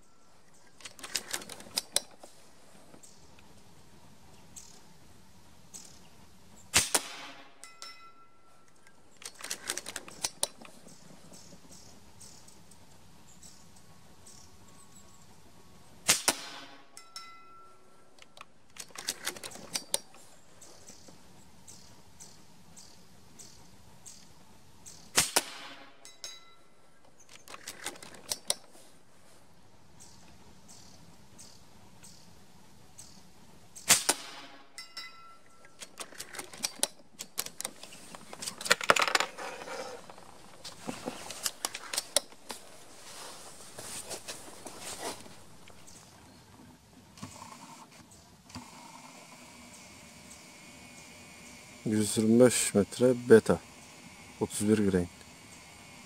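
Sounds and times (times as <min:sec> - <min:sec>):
rifle cocking clicks and clatter: 0:00.7 - 0:02.3, 0:08.8 - 0:11.0, 0:18.2 - 0:20.2, 0:27.1 - 0:28.7, 0:35.5 - 0:42.6
rifle handling noise: 0:00.7 - 0:03.0, 0:08.7 - 0:11.1, 0:18.1 - 0:20.3, 0:27.0 - 0:28.8, 0:35.2 - 0:45.9
air rifle shots: 0:06.7 - 0:07.6, 0:16.0 - 0:16.9, 0:25.1 - 0:26.1, 0:33.8 - 0:34.7.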